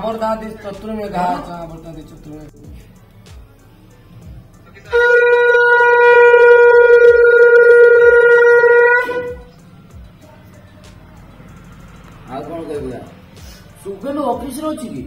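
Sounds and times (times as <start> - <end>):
conch shell blown: 4.8 - 9.6.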